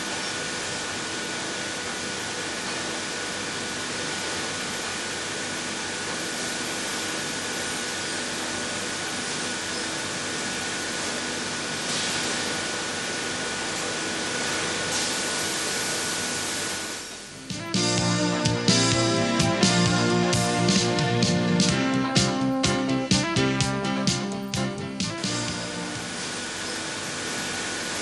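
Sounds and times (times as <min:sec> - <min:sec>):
thin steady whine: 0:16.6 - 0:28.0.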